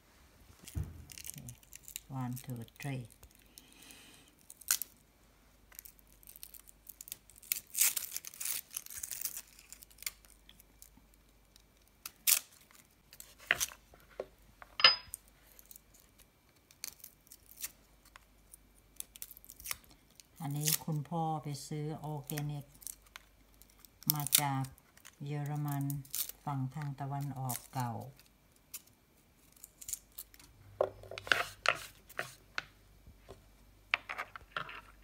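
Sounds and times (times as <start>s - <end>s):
garlic skin crackling and tearing: 0.6s - 3.7s, 4.3s - 5.0s, 5.7s - 13.8s, 15.5s - 21.0s, 22.0s - 30.5s.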